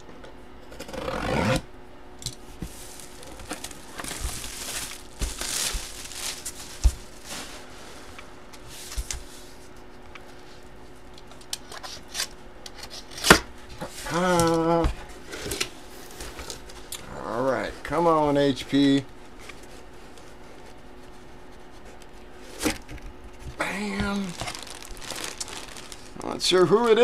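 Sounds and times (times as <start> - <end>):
cardboard scraping and tearing: 2.7 - 7.6, 23.9 - 26.2.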